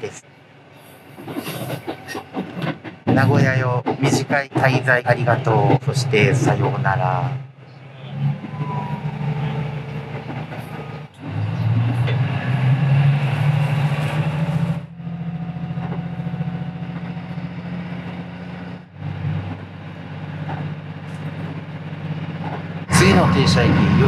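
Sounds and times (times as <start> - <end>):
diesel railcar engine hum: 0.0 - 24.0
rail running noise: 0.0 - 24.0.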